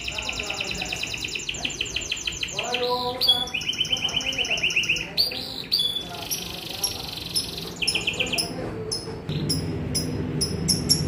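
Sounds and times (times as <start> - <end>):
canary singing trills: 0.0 - 11.0
steady low hum: 8.4 - 11.0.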